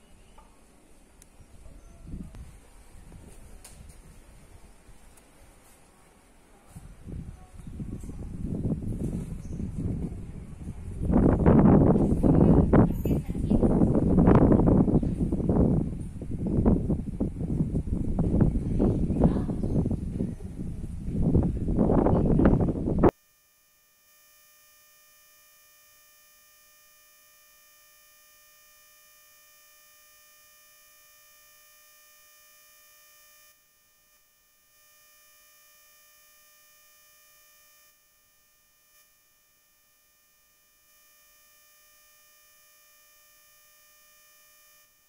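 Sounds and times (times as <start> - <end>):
high-pitched electronic whine: 21.3 - 45.0.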